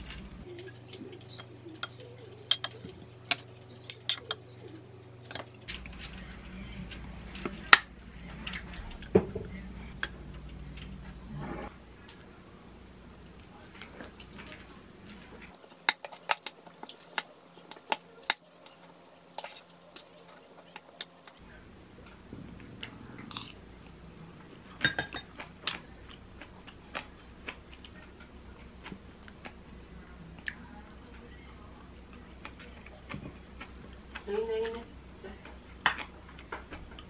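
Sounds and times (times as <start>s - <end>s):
soft chewing: 0.0s - 9.1s, 11.9s - 22.2s, 22.8s - 37.0s
metal spoon scraping ceramic bowl: 1.2s - 4.6s, 15.6s - 21.4s
chopsticks tapping bowl: 1.3s - 4.5s.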